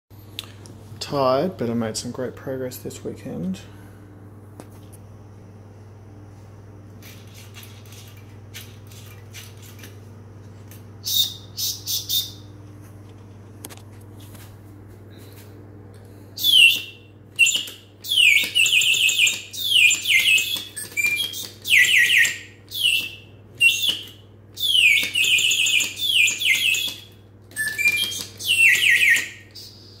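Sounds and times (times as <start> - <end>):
faint steady hum: 0.2 - 30.0
mechanical bird whistle chirping: 11.0 - 12.5, 16.4 - 30.0.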